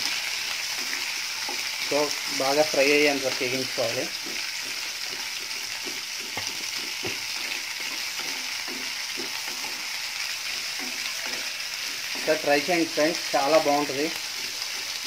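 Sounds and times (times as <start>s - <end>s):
food sizzling in hot oil: 0.0s - 15.0s
spatula knocking on pan: 0.8s - 1.9s, 4.1s - 12.7s.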